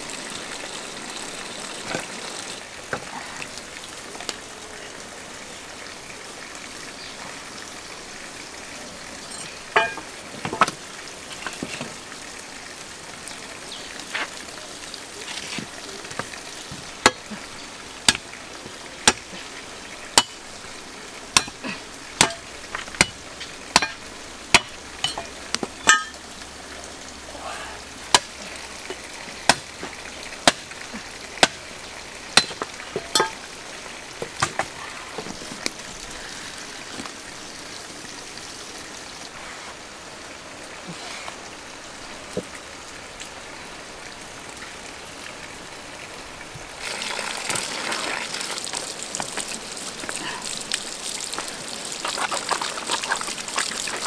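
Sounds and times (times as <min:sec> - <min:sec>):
wood fire crackling: 0:46.7 - 0:54.0
water pouring onto fish: 0:46.8 - 0:54.0.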